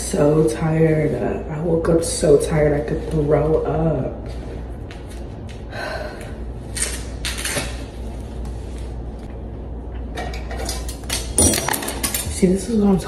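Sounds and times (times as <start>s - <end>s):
low steady hum: 0.0s - 13.0s
objects knocking and clattering: 10.1s - 12.5s.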